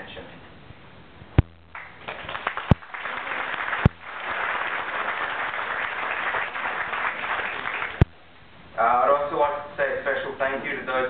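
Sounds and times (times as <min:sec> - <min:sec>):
guests applauding: 0:01.7 - 0:08.1.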